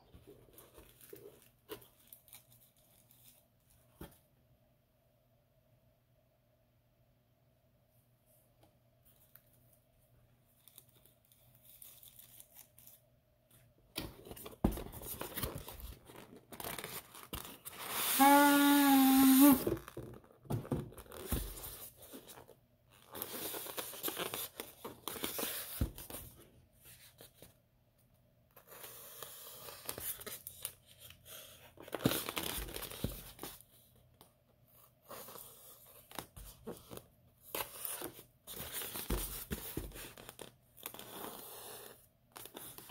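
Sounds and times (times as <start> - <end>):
styrofoam rustling and scraping: 15.1 - 19.8.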